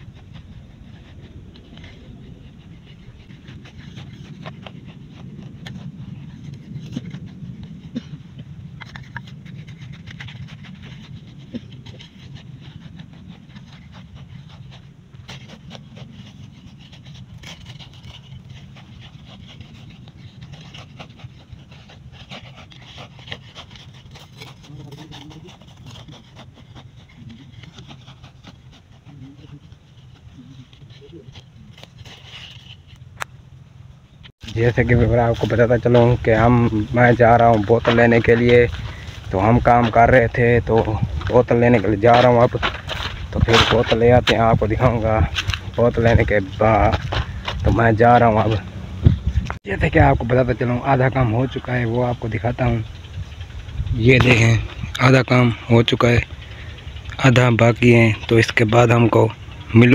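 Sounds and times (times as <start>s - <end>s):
hoe scraping gritty soil: 0.0s - 33.2s, 34.2s - 59.9s
steady low rumble: 0.0s - 59.9s
hoe chopping soil: 34.6s - 48.6s.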